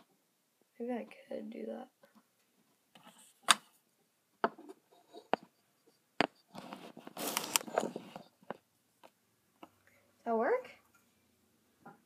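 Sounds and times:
rubbing on microphone: 4.9 - 8.6.

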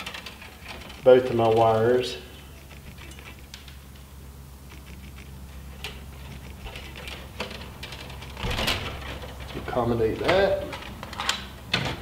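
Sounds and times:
wire stripper clicks: 4.7 - 8.1.

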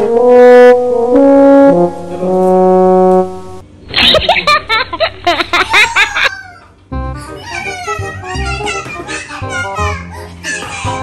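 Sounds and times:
sad trombone sound effect: 0.0 - 3.6
burst of laughter: 3.9 - 6.4.

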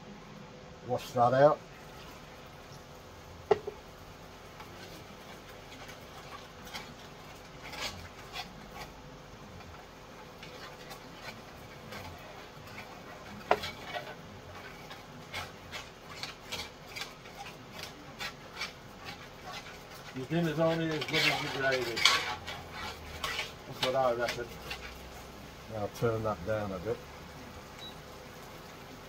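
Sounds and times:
utensil scraping gravy in pan: 1.0 - 29.0
utensil knocking against pan: 3.5 - 3.8.

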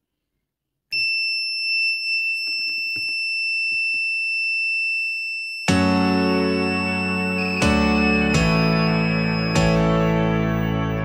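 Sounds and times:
high-pitched buzzer beep: 5.0 - 10.6.

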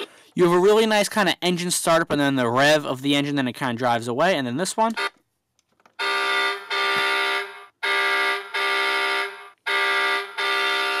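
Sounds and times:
electronic truck horn blasts: 6.0 - 11.0.

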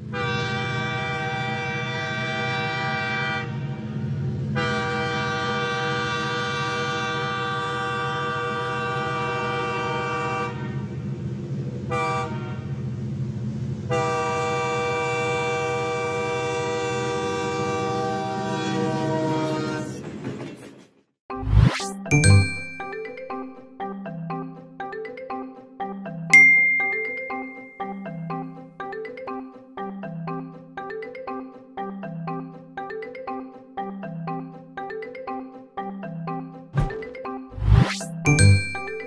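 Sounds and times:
train horn blasts: 0.0 - 11.1, 11.8 - 12.9, 13.9 - 20.0
low rumble of moving train: 0.0 - 21.0.

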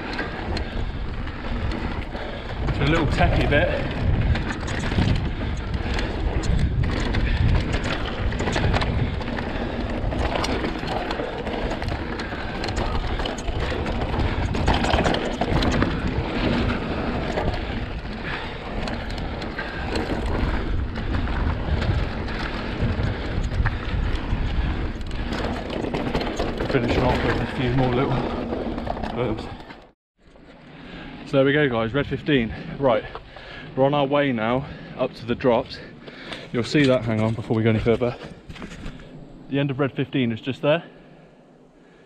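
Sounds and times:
wind rumble on microphone: 0.0 - 29.9
bike clicks and rattles: 0.0 - 33.8, 34.6 - 39.4
tyres rolling over dirt: 0.0 - 40.0.

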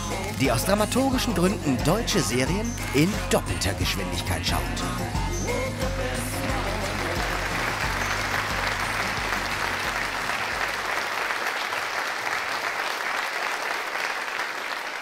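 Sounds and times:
studio audience applauding: 0.0 - 3.3, 4.6 - 15.0
low music: 0.0 - 10.9.

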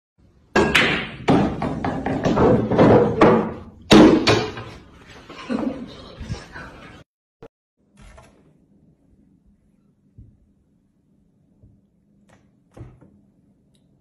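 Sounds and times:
snooker balls knocking: 0.6 - 4.7.

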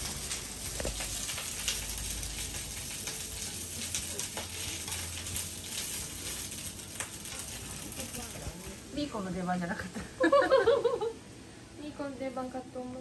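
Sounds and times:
vegetables sizzling in a frying pan: 0.0 - 12.5
chopsticks clicking on pan: 0.1 - 8.3.

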